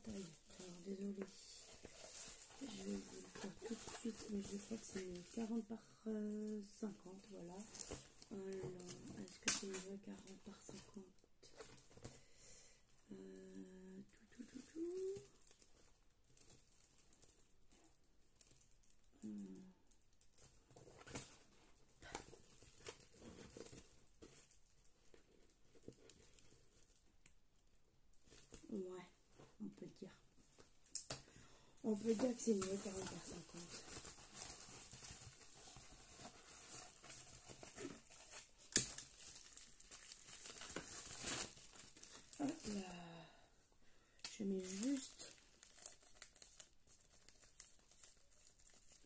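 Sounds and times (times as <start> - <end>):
paper crinkling and rustling: 0.0 - 5.7, 31.9 - 42.9, 44.4 - 49.0.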